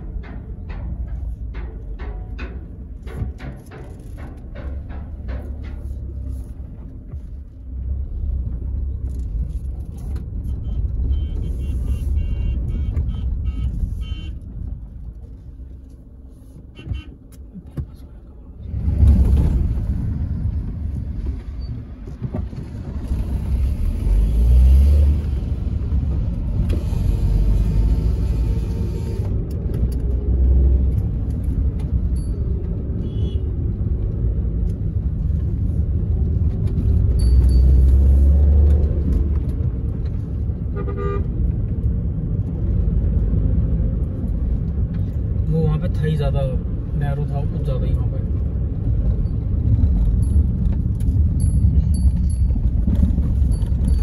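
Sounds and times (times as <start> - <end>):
vehicle engine and road noise: 0.0 - 54.0.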